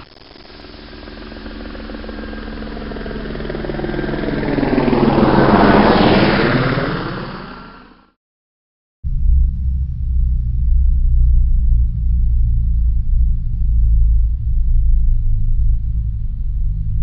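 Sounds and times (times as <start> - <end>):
aircraft flying past: 0.0 - 8.1.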